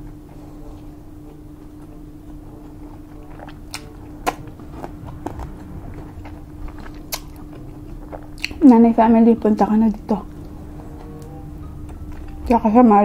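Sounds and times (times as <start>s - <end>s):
steady low hum: 0.0s - 13.0s
person chewing: 2.5s - 5.5s, 6.2s - 8.6s.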